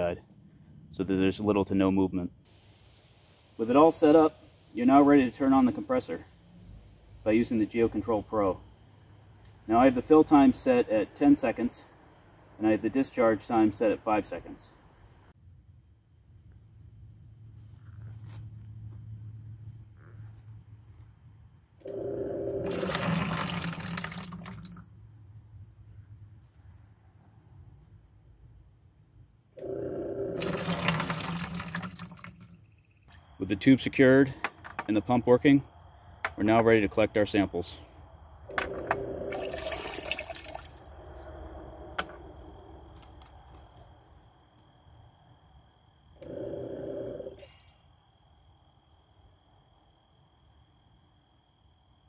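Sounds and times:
gurgling sputter of pump tube: 21.8s - 24.8s, 29.6s - 32.6s, 38.5s - 40.9s
water pouring into bucket: 22.6s - 24.8s, 30.3s - 32.6s, 38.7s - 41.0s.

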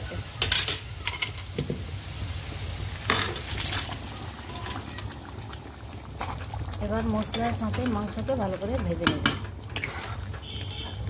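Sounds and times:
metal cookware clattering: 0.4s - 1.8s.

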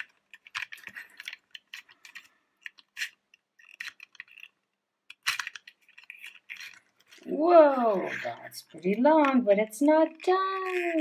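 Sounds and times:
toy plastic ladder clicking: 0.0s - 9.4s, 10.0s - 11.0s.

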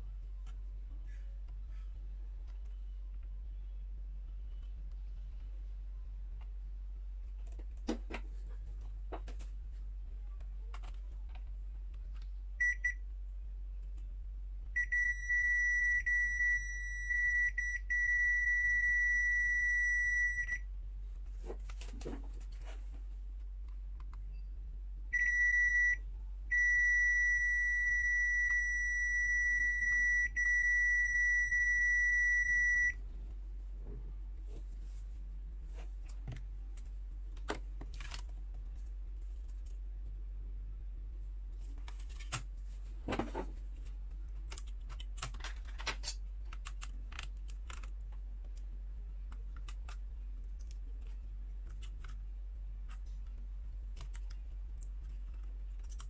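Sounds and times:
multimeter continuity beep: 12.6s - 13.0s, 14.8s - 20.6s, 25.1s - 33.0s.

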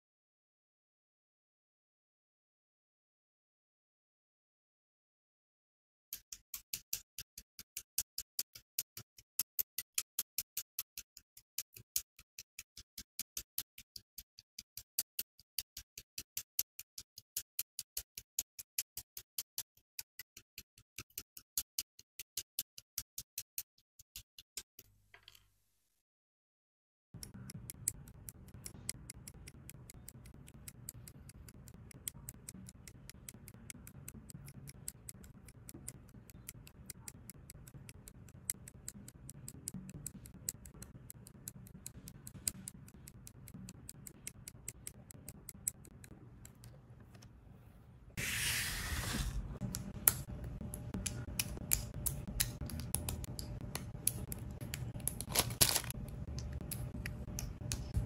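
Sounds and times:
plastic parts clicking together: 49.7s - 58.0s.

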